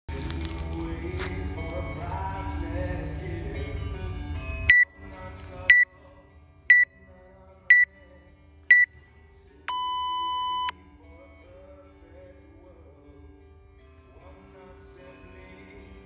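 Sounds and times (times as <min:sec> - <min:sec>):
music: 0:00.1 - 0:16.0
timer beeping: 0:09.7 - 0:10.7.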